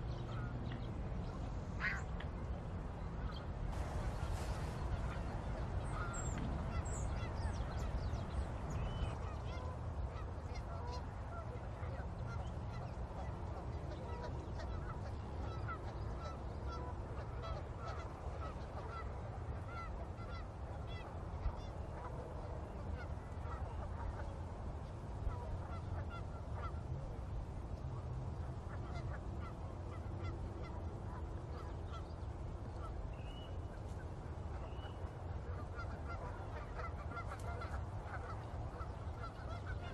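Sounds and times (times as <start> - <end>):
geese honking: 0.0 - 2.1, 3.2 - 22.2, 22.9 - 24.3, 24.9 - 26.9, 28.3 - 39.9
steady low rumble: 0.0 - 39.9.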